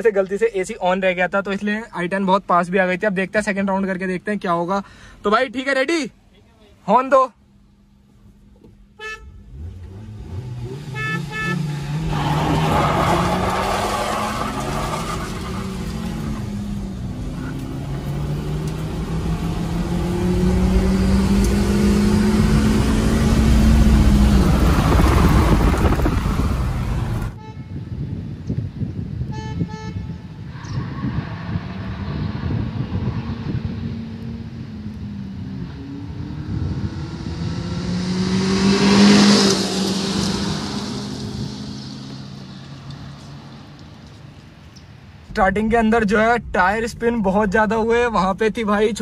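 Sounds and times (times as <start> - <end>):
car horn toots: 8.9 - 9.7, 10.7 - 11.9, 27.2 - 28.0, 29.2 - 30.4
car engine revving: 9.4 - 27.4, 31.1 - 44.2
tyres spinning on gravel: 12.1 - 16.2.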